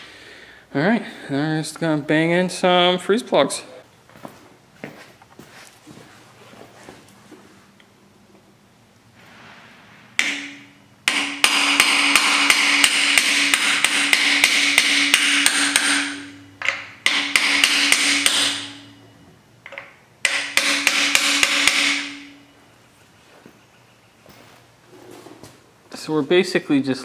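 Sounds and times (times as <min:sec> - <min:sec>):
hammer striking metal: 0:10.1 - 0:19.1, 0:19.7 - 0:22.5.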